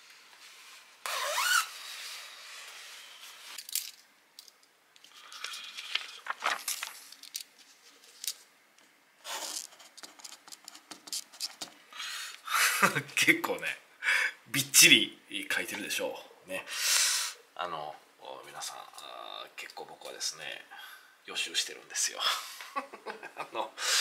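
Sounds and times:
paper shuffling: 0:05.0 - 0:08.4
clothing rustling: 0:05.1 - 0:08.4.

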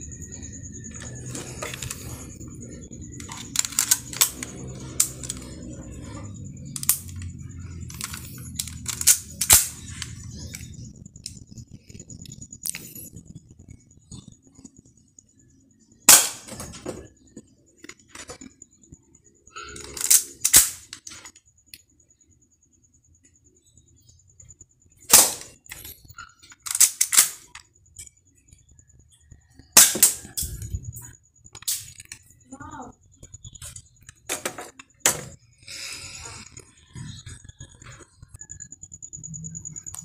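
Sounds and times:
pistol handling clicks: 0:07.9 - 0:09.8, 0:19.8 - 0:21.0, 0:26.7 - 0:27.6
airsoft pistol shots: 0:16.1 - 0:16.6, 0:25.1 - 0:25.5.

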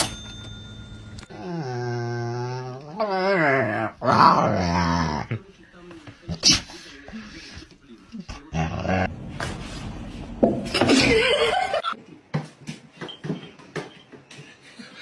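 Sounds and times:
person laughing: 0:10.8 - 0:12.0.

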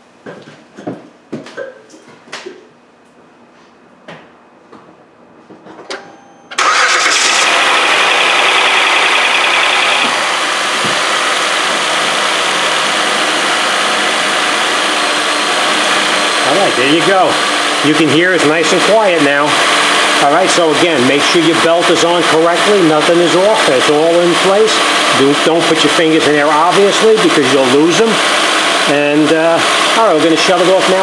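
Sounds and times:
car engine starting and idling: 0:06.5 - 0:31.0.

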